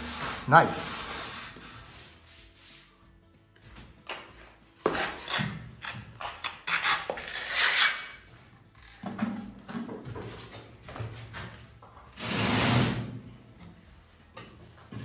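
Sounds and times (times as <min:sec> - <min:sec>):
faint music: 0:00.0 - 0:15.0
hand tools clinking and scraping: 0:03.6 - 0:13.0.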